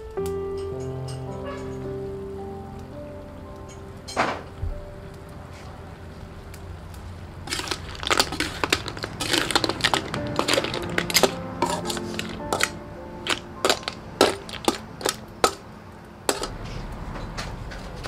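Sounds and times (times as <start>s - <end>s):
ladle scraping wok: 7.4s - 15.6s, 16.3s - 16.9s
shells clattering in metal wok: 7.5s - 15.6s, 16.3s - 16.6s.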